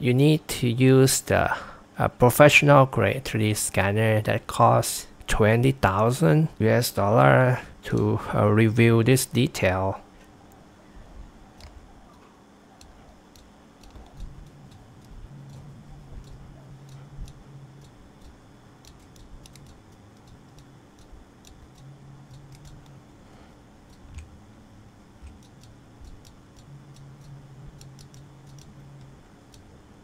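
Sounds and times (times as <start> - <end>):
low hum: 0.0 - 30.0
computer mouse and keyboard clicks: 11.5 - 23.0, 23.8 - 24.4, 25.2 - 29.7.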